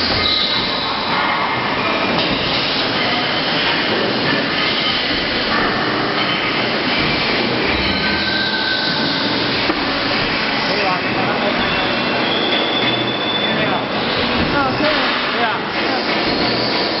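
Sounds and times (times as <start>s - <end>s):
factory machinery running: 0.0s - 17.0s
short high squeals: 7.7s - 9.6s, 11.6s - 14.2s.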